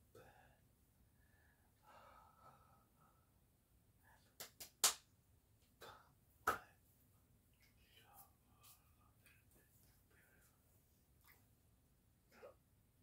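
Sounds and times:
faint breathy vocal sound: 0.0s - 3.4s.

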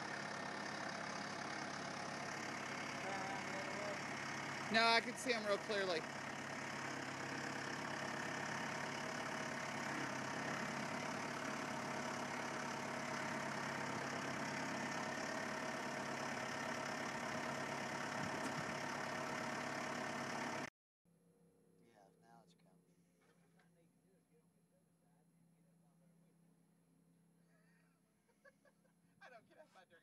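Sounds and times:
tractor diesel engine running: 0.0s - 20.7s.

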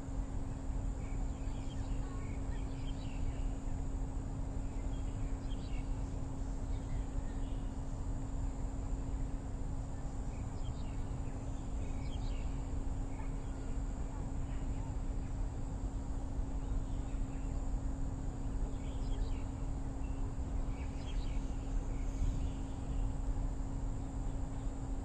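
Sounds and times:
low background hum: 0.0s - 25.0s
small birds chirping: 10.4s - 13.7s, 18.7s - 23.2s.

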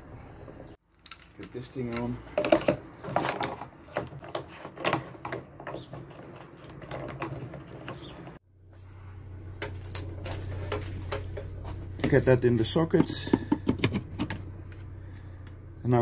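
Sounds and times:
steady low hum: 8.5s - 16.0s.

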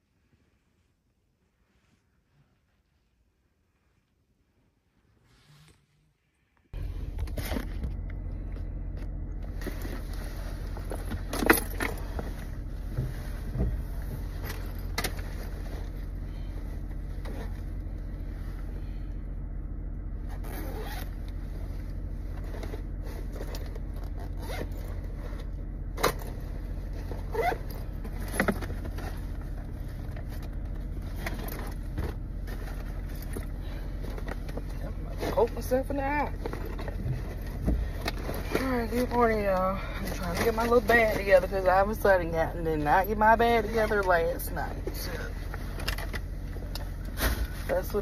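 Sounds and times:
car engine humming: 4.6s - 48.0s
rustles and knocks of handling: 7.0s - 18.6s, 21.6s - 42.0s.

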